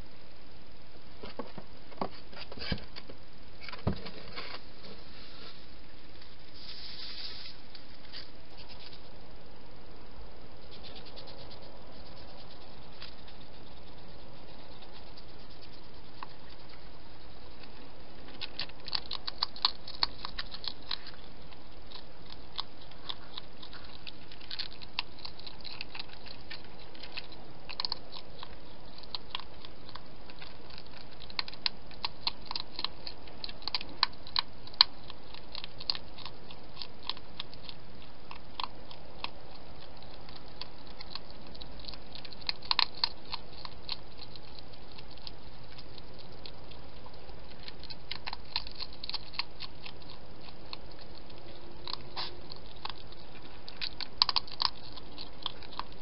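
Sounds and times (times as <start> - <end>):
steady hiss: 4.3 - 18.2
hedgehog chewing crunchy food: 5.6 - 56.0.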